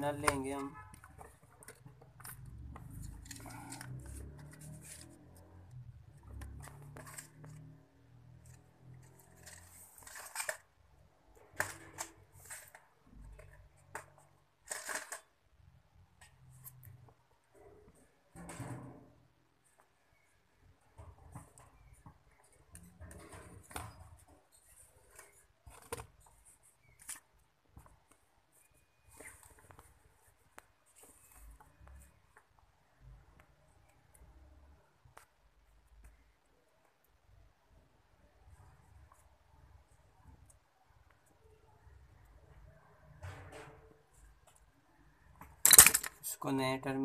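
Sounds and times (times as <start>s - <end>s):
fingers handling small parts: 45.6s - 46.3s.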